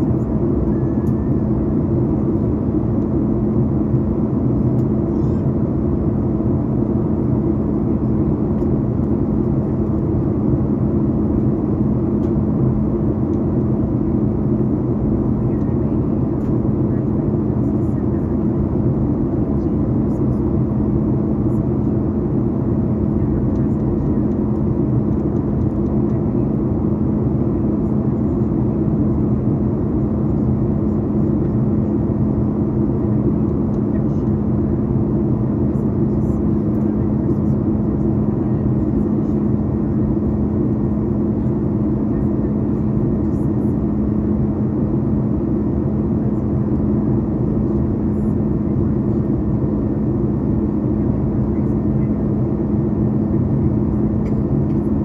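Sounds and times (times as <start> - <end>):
jet engine drone: 0.0 - 55.0
steady low hum: 0.0 - 55.0.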